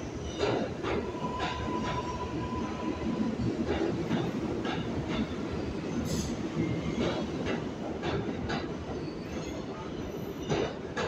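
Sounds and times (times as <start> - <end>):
subway train rumbling past: 0.0 - 11.0.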